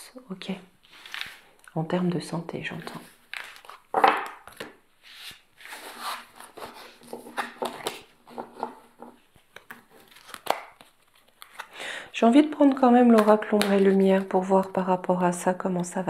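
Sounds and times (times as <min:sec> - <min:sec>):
cards scraping and tapping: 0:02.7 - 0:11.8
deck of cards being squared: 0:05.0 - 0:07.5.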